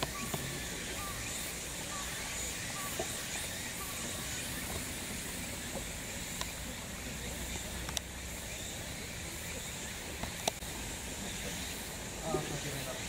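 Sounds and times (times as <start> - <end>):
faint chirps: 0.0 - 13.0
steady hiss: 0.0 - 13.0.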